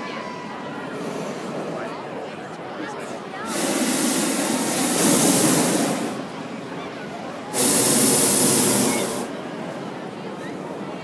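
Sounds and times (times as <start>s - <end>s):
propane burner blasts: 3.4s - 6.7s, 7.5s - 9.5s.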